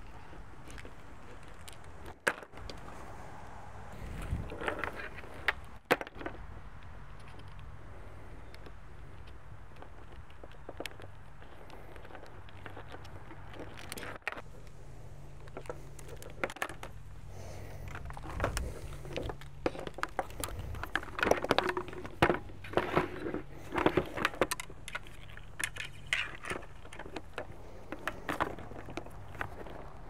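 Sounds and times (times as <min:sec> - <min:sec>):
plastic and metal parts rattling: 0:15.4 - 0:30.0.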